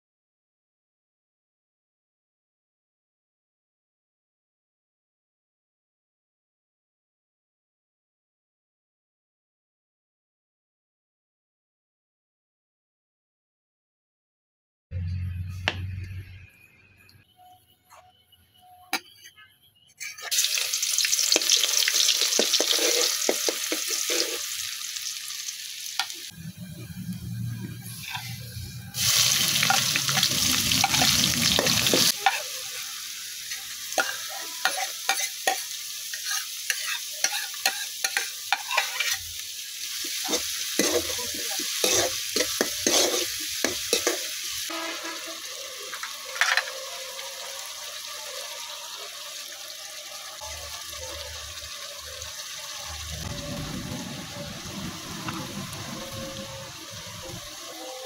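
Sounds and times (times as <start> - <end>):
spatula scraping a pan: 20.0 - 24.8, 27.9 - 32.8, 33.4 - 39.3, 40.0 - 47.8
onions sizzling in oil: 20.0 - 58.0.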